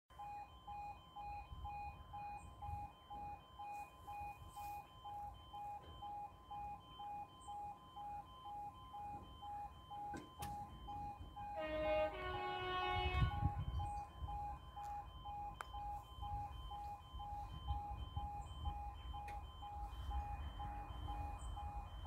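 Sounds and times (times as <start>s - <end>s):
level crossing alarm pulsing: 0.1s - 22.0s
chord of tones: 10.9s - 22.0s.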